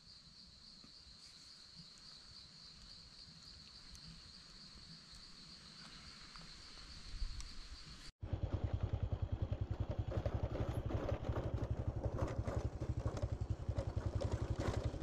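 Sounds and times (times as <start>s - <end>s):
high-pitched insect trill: 0.0s - 8.1s.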